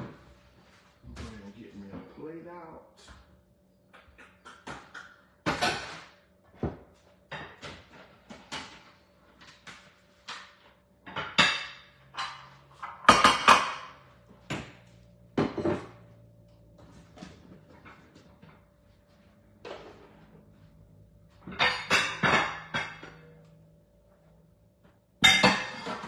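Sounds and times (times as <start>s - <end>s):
dishes clinking and knocking: 4.0s - 8.9s, 10.3s - 14.8s, 15.4s - 16.1s, 21.4s - 23.5s, 25.2s - 26.0s
dishes set down on stone countertop: 15.4s - 16.0s.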